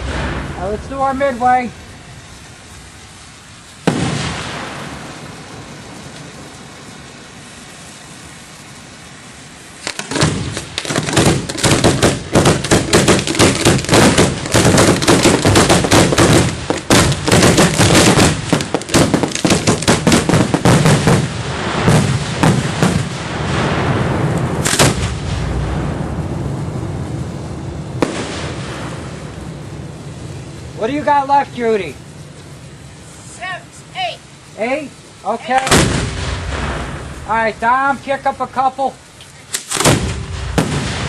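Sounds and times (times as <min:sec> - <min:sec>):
fireworks shells firing: 0:00.0 - 0:07.3, 0:09.7 - 0:26.2, 0:27.9 - 0:30.4, 0:35.4 - 0:41.0
fireworks crackling rumble: 0:00.0 - 0:41.0.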